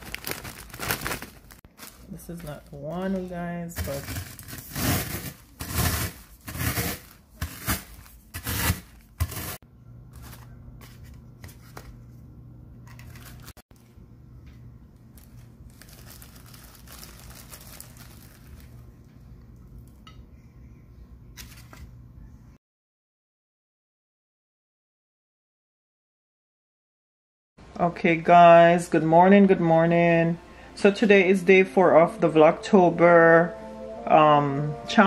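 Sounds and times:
snacks crunching in plastic bag: 0.0s - 2.8s, 15.1s - 18.8s.

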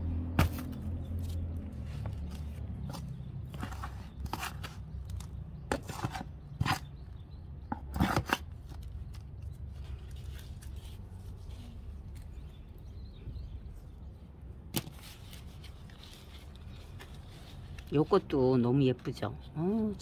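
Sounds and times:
trowel scraping through soil: 5.7s - 6.9s.

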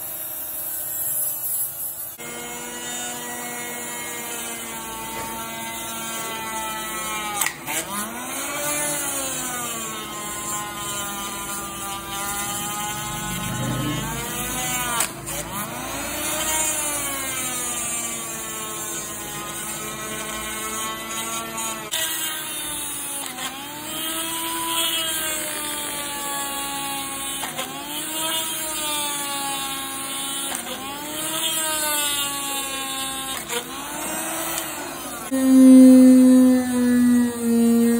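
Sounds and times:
electric drill motor whining: 30.6s - 37.9s.

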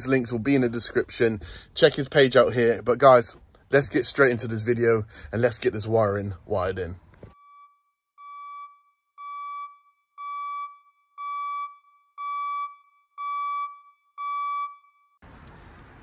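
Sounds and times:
electronic beeper beeping: 7.4s - 14.9s.

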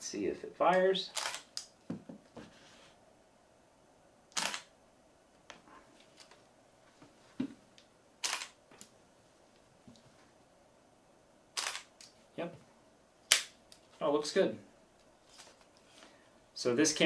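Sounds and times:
camera shutter clack: 1.1s - 1.5s, 4.4s - 4.7s, 8.2s - 8.6s, 11.6s - 11.9s.

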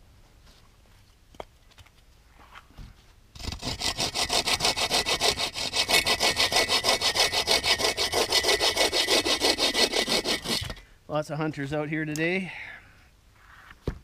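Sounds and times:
bow saw cutting log: 3.4s - 10.8s.

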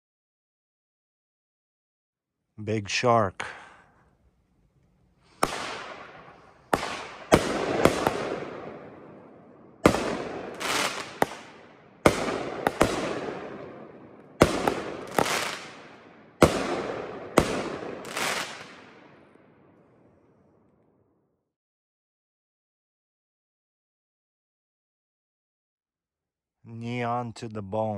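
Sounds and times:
firework bangs with rumble: 6.7s - 8.8s, 9.8s - 13.8s, 14.4s - 18.9s.

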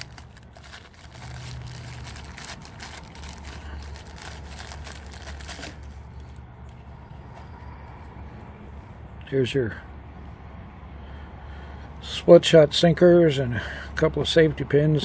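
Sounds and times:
plastic bag crinkling: 0.0s - 6.4s
low steady hum: 0.0s - 12.0s.

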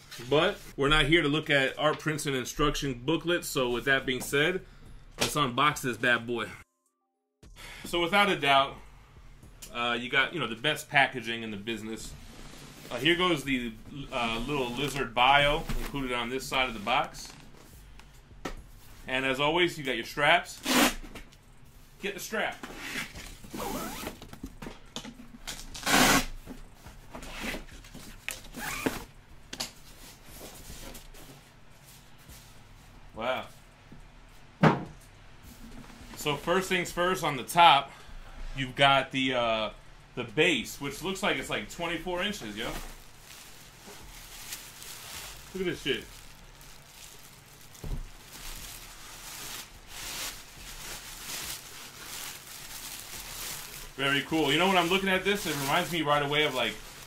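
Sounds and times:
plastic wrapping crinkling: 40.8s - 57.0s.

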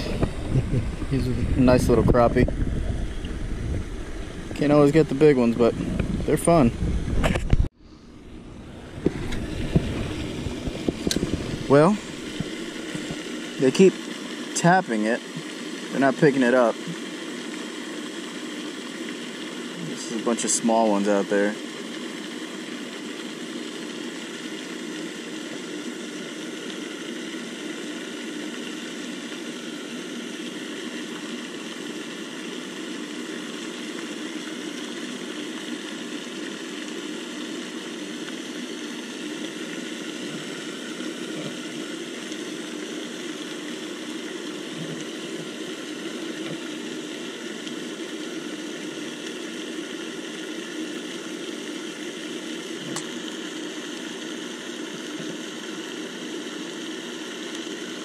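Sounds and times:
machine hum: 0.0s - 13.9s, 36.4s - 50.6s.

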